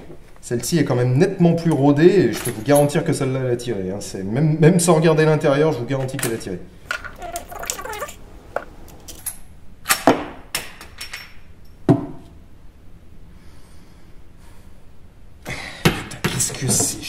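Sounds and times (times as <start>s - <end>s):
cartridges loading into rifle: 6.9s - 7.8s.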